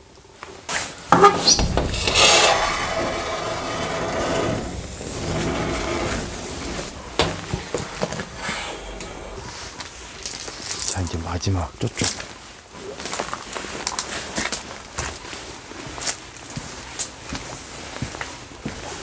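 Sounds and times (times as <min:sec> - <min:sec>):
wooden door scraping open: 0:01.1 - 0:09.8
door knocks: 0:01.2 - 0:09.2.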